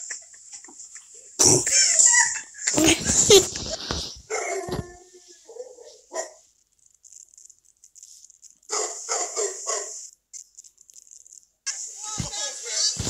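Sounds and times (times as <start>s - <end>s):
small dog barking: 4.3s - 4.7s, 5.5s - 6.4s, 8.7s - 10.0s.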